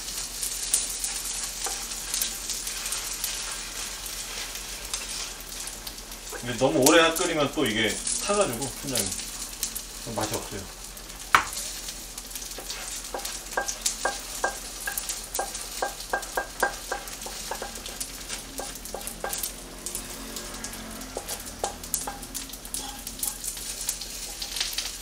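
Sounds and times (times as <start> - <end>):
paste sizzling in oil: 0.0 - 25.0
utensil scraping a pan: 12.6 - 25.0.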